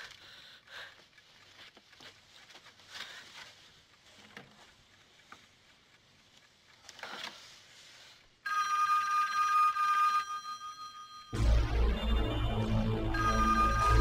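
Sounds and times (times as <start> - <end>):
telephone bell ringing: 8.4 - 11.4, 13.1 - 14.0.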